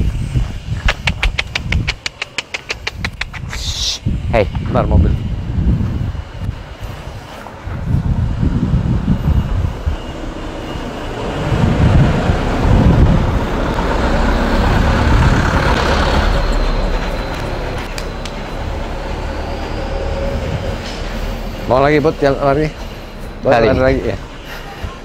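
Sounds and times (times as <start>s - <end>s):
truck driving past: 6.0s - 25.0s.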